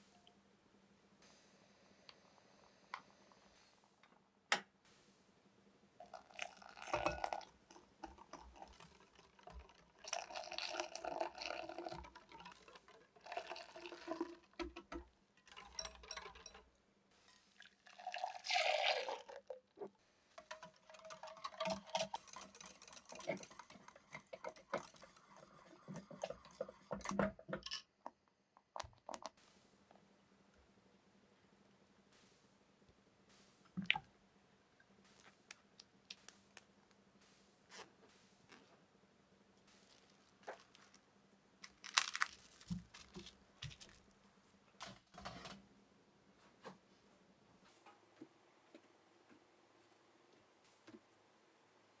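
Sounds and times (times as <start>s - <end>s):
liquid sloshing and pouring: 6.0s - 16.7s, 17.3s - 27.3s
wire whisk rattling in glass bowl: 6.1s - 17.4s, 20.4s - 27.8s.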